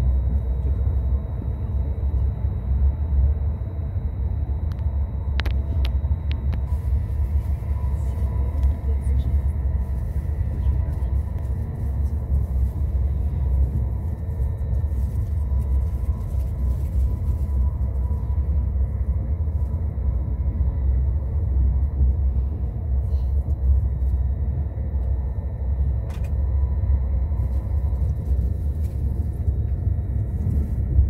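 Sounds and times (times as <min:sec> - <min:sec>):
faint high whine: 0:00.0 - 0:31.0
train rumbling at speed: 0:00.0 - 0:31.0.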